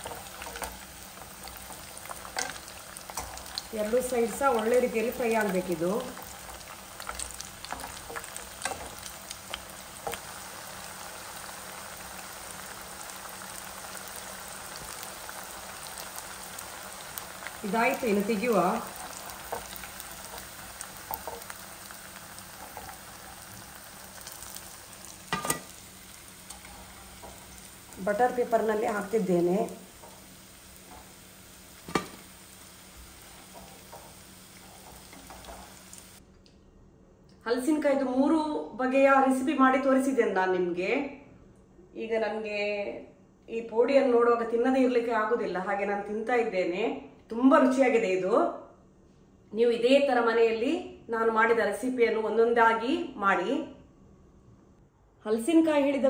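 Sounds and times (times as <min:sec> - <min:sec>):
food frying in oil: 0:00.0 - 0:36.2
oil ticking and popping: 0:06.1 - 0:10.9, 0:18.7 - 0:29.0, 0:29.8 - 0:36.2.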